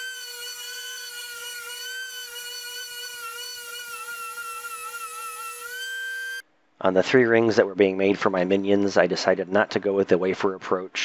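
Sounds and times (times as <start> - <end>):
rotary tool sanding wood: 0.0 - 6.4.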